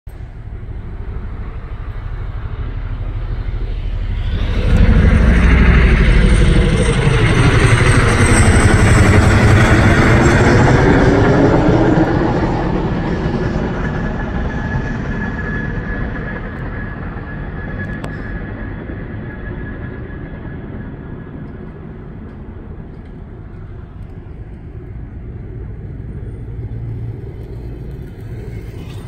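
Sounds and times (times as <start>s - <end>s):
low-flying aircraft engine: 0.1s - 29.0s.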